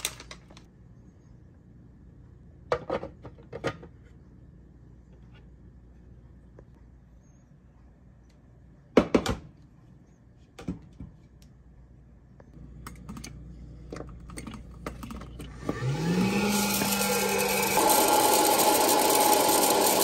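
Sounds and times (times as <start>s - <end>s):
popcorn popper motor hum: 12.6s - 20.0s.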